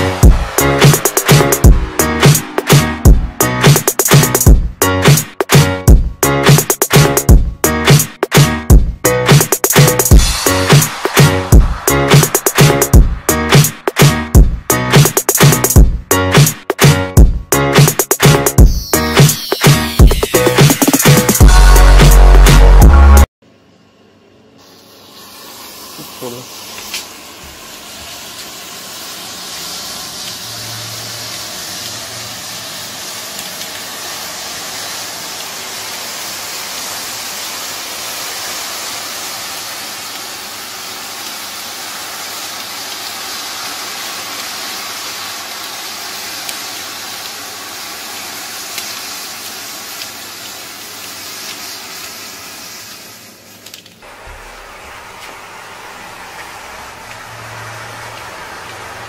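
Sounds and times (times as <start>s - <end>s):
burning matches hissing: 28.1s - 54.0s.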